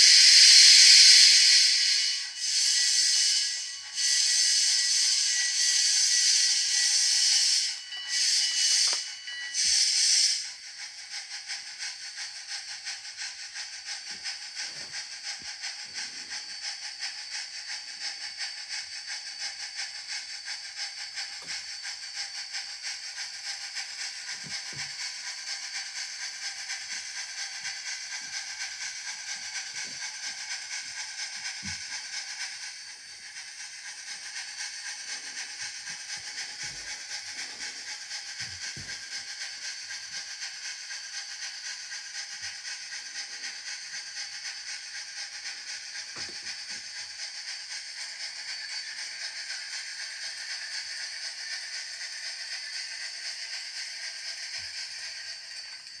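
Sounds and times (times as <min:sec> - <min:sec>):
model steam locomotive chuffing: 0:00.0 - 0:56.0.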